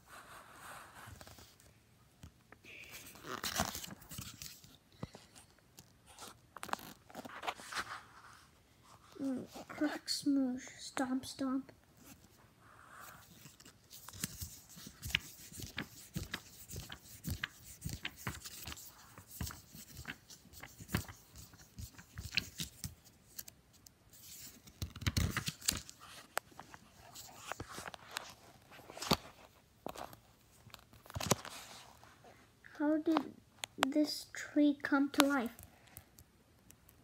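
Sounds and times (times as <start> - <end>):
book pages flapping: 3.0 - 8.4, 13.1 - 23.5, 24.1 - 32.1.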